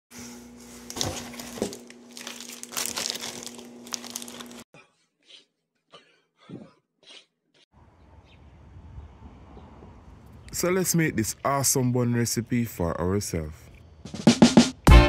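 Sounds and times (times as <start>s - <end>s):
packaging crinkling and rustling: 0.6s - 4.6s.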